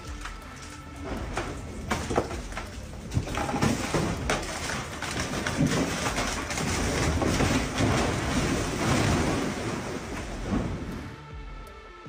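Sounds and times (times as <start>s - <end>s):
rock breaking and falling: 0.0s - 11.1s.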